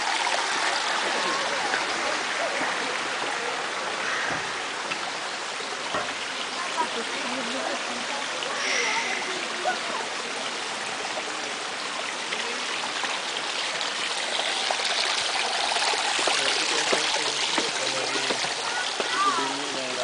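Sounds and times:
water trickling down stone channels: 0.0s - 20.0s.

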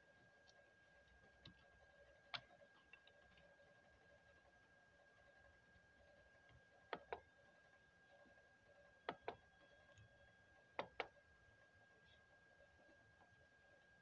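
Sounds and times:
faint high whine: 3.5s - 14.0s.

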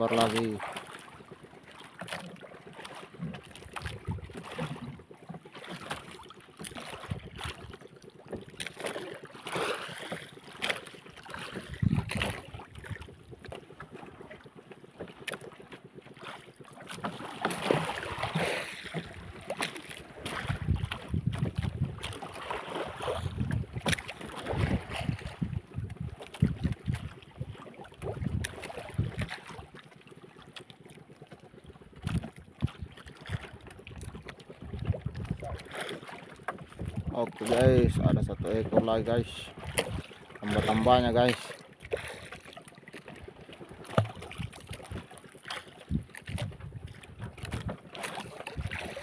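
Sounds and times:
knocks and rubs against boat: 0.0s - 49.0s
water lapping at boat hull: 0.0s - 49.0s.

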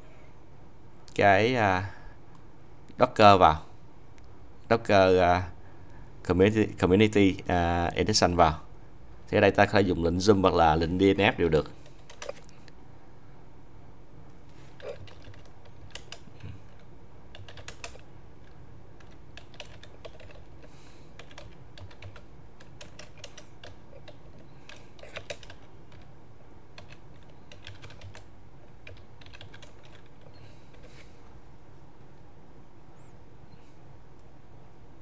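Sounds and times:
computer keyboard clicking: 11.8s - 12.4s, 14.8s - 26.1s, 26.8s - 30.9s.

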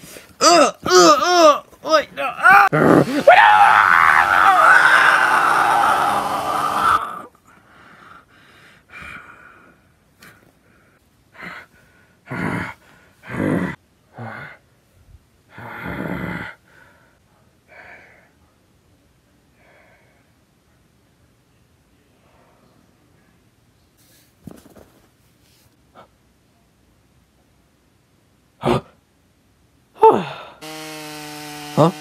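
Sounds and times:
person breathing hard and gasping: 7.4s - 14.6s, 30.0s - 30.6s.

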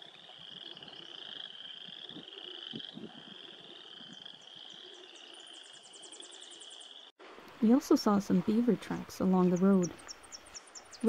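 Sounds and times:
frogs trilling: 0.0s - 7.1s.

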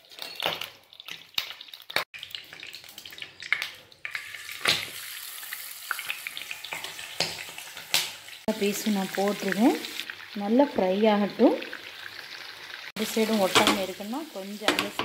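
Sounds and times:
fish sizzling in hot oil: 0.0s - 15.0s
knocks in frying pan: 13.5s - 13.9s.

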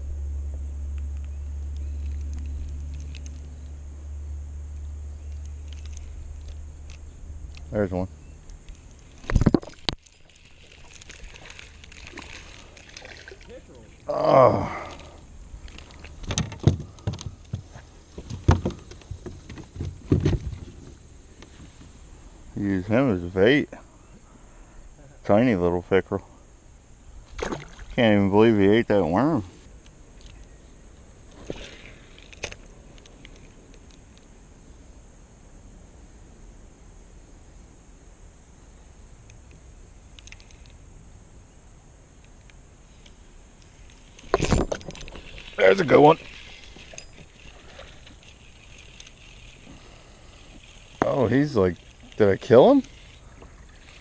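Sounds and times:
faint steady hiss: 0.0s - 54.0s
fishing reel clicks: 39.3s - 40.8s, 45.0s - 49.6s, 50.3s - 54.0s.

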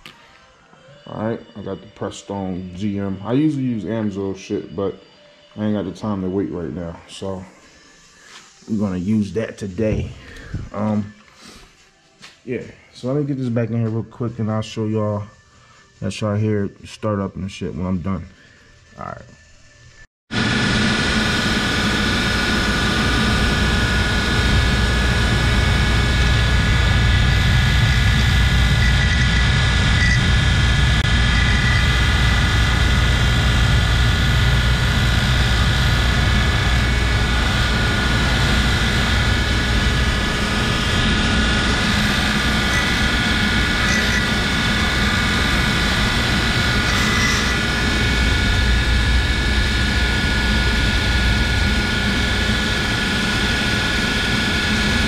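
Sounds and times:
bench grinder whining: 20.3s - 55.0s.

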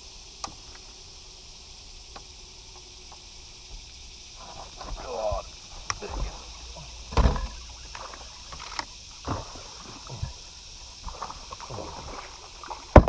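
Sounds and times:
steady high hiss: 0.0s - 13.0s
knocks and thumps on boat deck: 7.0s - 8.2s.

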